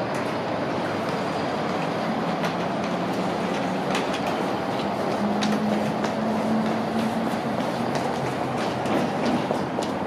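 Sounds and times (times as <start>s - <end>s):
passengers footsteps: 0.0s - 10.0s
suitcases rolling: 0.0s - 10.0s
tram equipment humming: 0.0s - 10.0s.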